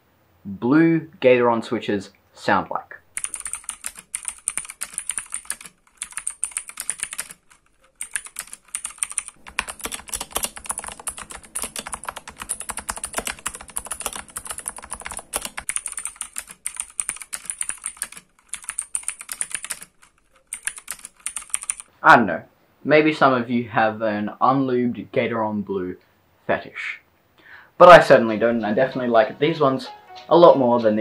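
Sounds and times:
fast typing on mechanical keyboard: 3.1 - 21.9.

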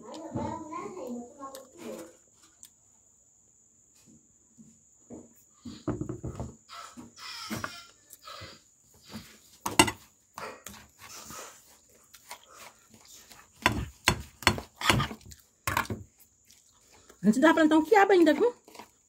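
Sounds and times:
person chewing and lip smacking: 2.5 - 2.8, 11.6 - 17.2.

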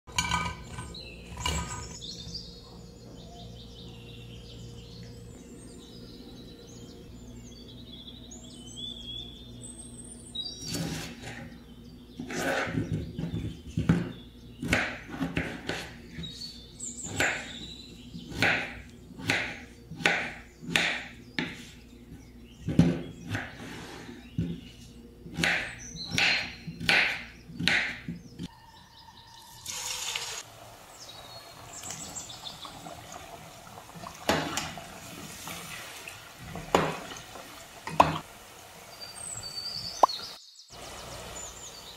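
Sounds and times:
knife chopping on wooden board: 12.3 - 16.0, 18.3 - 21.7, 25.3 - 28.5.

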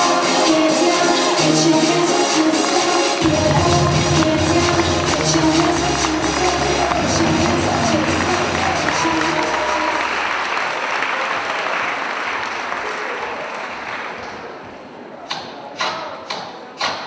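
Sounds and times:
music: 0.0 - 10.3
audience applauding: 3.0 - 14.4.

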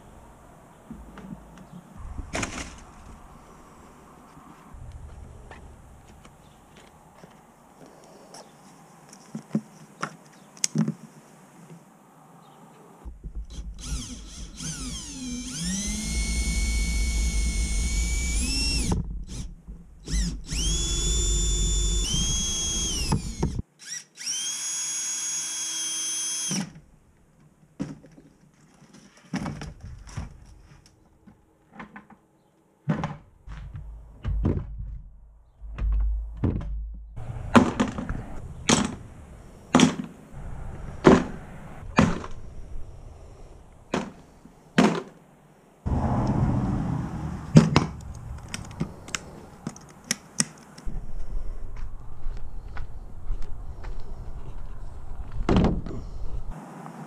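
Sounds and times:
cordless drill boring into plastic: 13.5 - 26.7.

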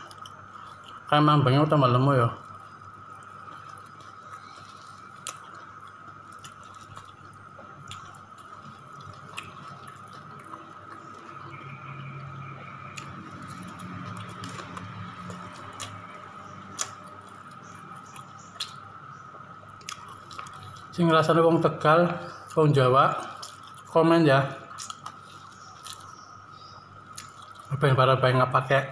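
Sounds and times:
person chewing food: 0.0 - 1.1, 2.4 - 19.0, 19.7 - 21.0, 23.2 - 23.9, 24.7 - 27.7
steady high-pitched whine: 0.0 - 28.9.

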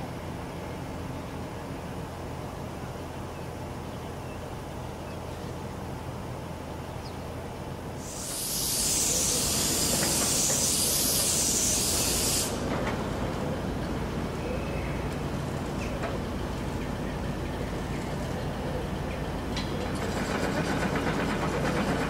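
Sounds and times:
train rumbling at platform: 0.0 - 22.0
compressed air hissing: 8.0 - 12.7.

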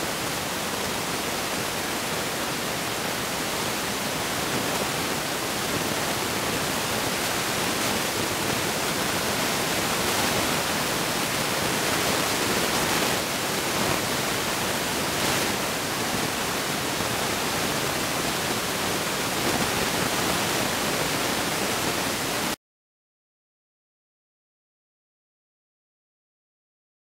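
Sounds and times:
steady hiss: 0.0 - 22.6.

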